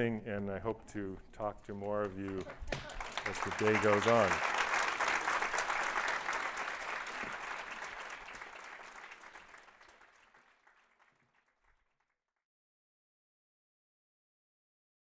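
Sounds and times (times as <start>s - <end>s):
audience applauding: 1.8s - 11.9s.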